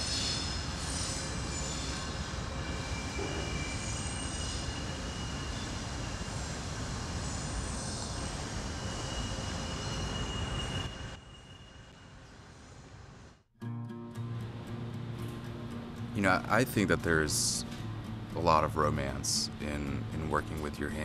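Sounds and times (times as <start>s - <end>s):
train wheels squealing: 0.0s - 13.0s
train rumbling past: 0.0s - 13.3s.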